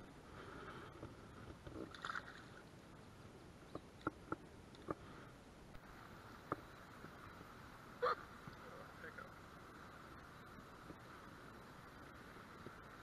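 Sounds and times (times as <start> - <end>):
moving water hiss: 0.0 - 13.0.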